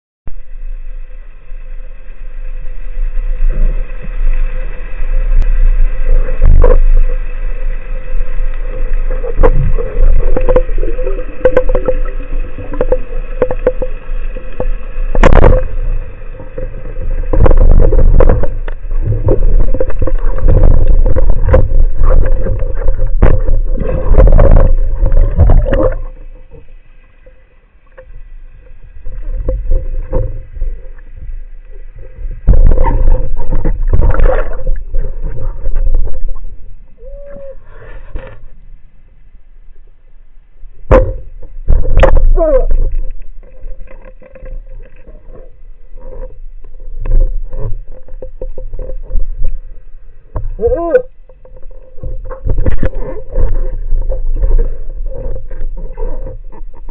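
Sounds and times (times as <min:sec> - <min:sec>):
water rushing against camera: 0:00.3 - 0:39.0, 0:40.8 - 0:56.9
steady hum: 0:00.3 - 0:56.9.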